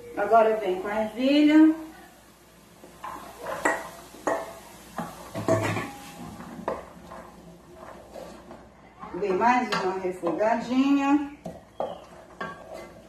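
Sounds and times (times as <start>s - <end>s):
wooden spoon stirring peas: 2.7s - 13.0s
steel bowl knocking on metal pan: 5.3s - 6.0s.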